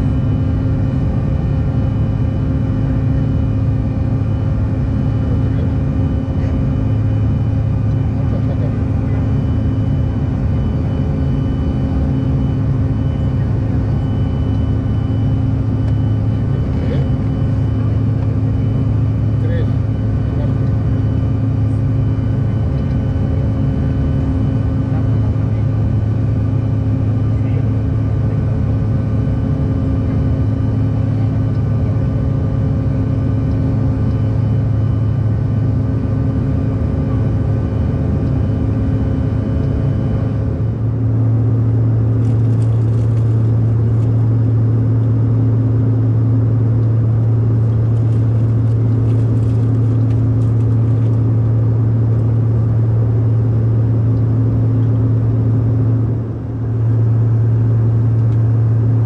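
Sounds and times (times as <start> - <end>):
airplane cabin drone: 0.0 - 59.0.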